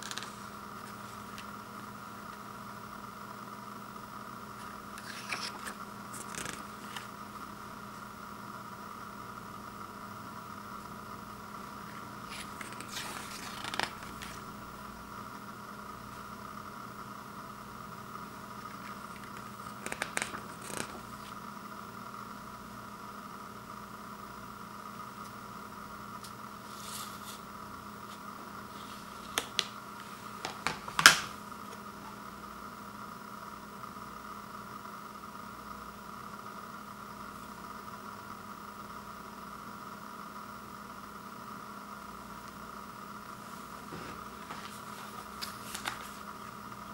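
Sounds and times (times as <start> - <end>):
booklet pages rustling: 0.0 - 1.5, 4.6 - 7.2, 11.9 - 14.5, 18.7 - 21.4, 26.6 - 27.4, 28.0 - 31.3, 43.6 - 46.8
plastic clicks of cd case: 18.8 - 21.0, 44.5 - 46.2.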